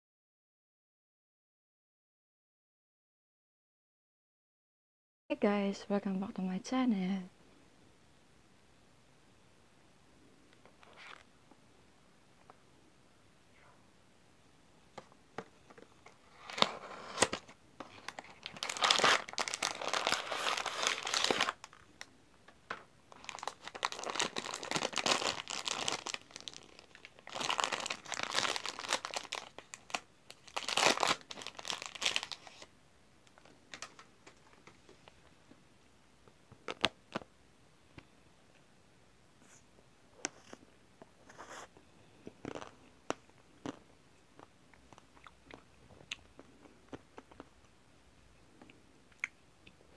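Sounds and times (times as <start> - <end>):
plastic wrapper crinkling and tearing: 16.0 - 22.1, 23.1 - 32.7, 36.6 - 37.3.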